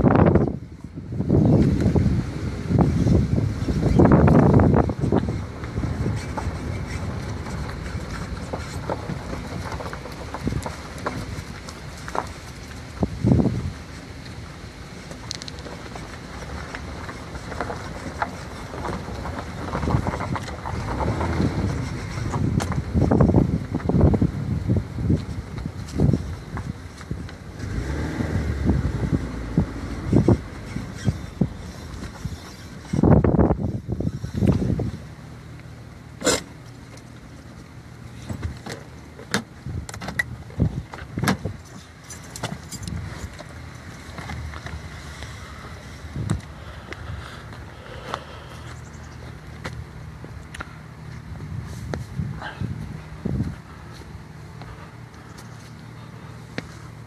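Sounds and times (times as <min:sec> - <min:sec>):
wind rumbling on microphone: 0:00.0 - 0:36.5, 0:37.2 - 0:57.0
car engine running low: 0:00.0 - 0:57.0
handling clicks and rustles: 0:03.7 - 0:27.8, 0:29.3 - 0:57.0.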